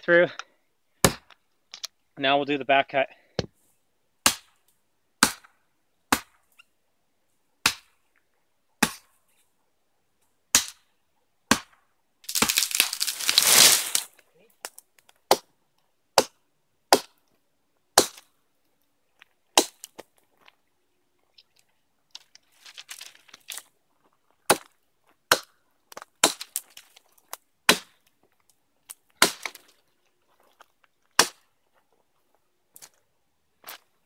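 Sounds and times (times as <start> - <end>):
axe chopping wood: 1.0 - 1.3, 4.2 - 4.6, 5.2 - 5.5, 6.1 - 6.4, 7.6 - 7.9, 8.8 - 9.1, 10.5 - 10.8, 11.5 - 12.7, 15.3 - 15.5, 16.2 - 17.2, 18.0 - 18.3, 25.3 - 25.6, 26.2 - 26.6, 27.7 - 28.0, 29.2 - 29.6, 31.2 - 31.4
rustling and crackling: 12.3 - 14.3, 21.3 - 24.2.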